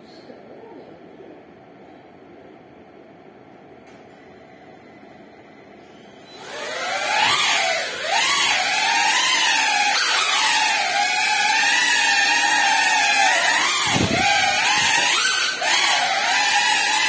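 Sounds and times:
drone motors whining: 6.2 - 17.0.

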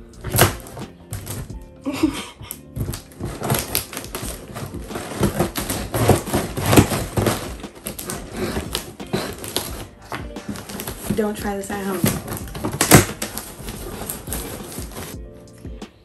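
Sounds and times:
blade slicing through tape and cardboard: 0.2 - 1.5, 2.8 - 15.2.

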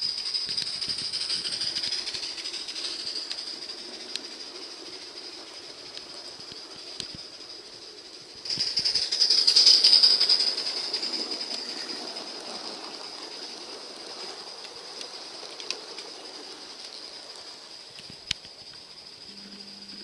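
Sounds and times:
model train wheels clattering: 0.0 - 20.0
high-pitched whine: 19.2 - 20.0.

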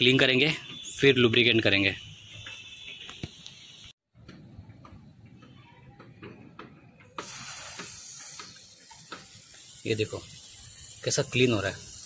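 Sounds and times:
aerosol spray hissing: 7.2 - 12.0.

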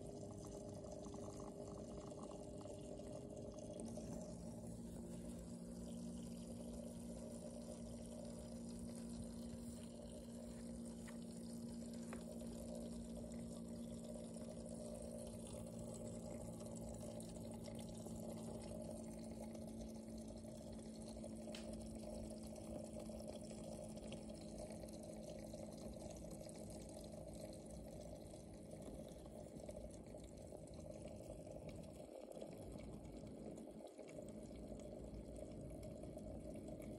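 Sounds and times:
filter low hum: 0.0 - 36.9
water trickling: 0.0 - 36.9.

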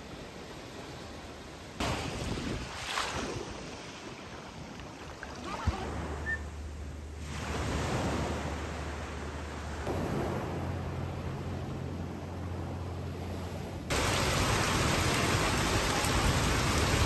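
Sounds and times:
sea waves washing in: 0.0 - 17.0
low steady hum: 5.2 - 16.9.

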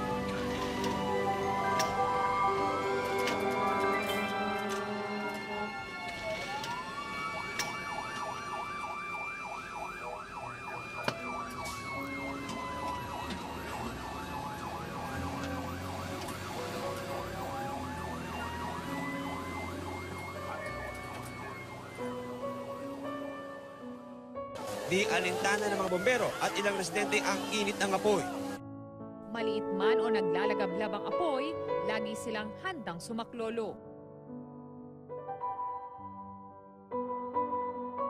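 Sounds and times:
soft sustained music: 0.0 - 6.8, 11.1 - 38.0
fire truck siren wailing: 0.0 - 24.0, 24.6 - 28.6
siren warbling rapidly: 5.0 - 22.1, 24.8 - 28.6.

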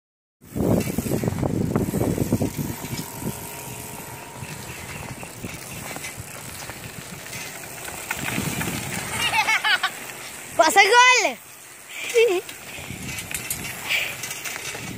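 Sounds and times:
wind buffeting microphone: 0.4 - 11.1, 12.3 - 14.9
road noise: 0.4 - 14.9.

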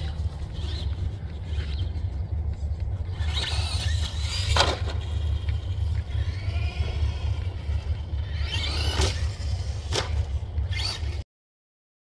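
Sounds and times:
electric motor and gears whining: 0.0 - 11.2
steady low rumble: 0.0 - 11.2.

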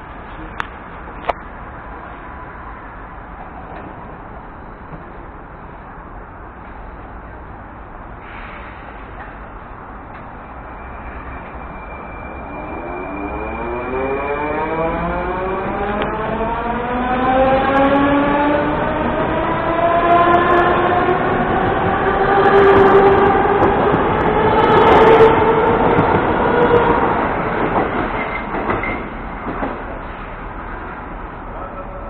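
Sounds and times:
rail clicks: 18.8 - 31.0.

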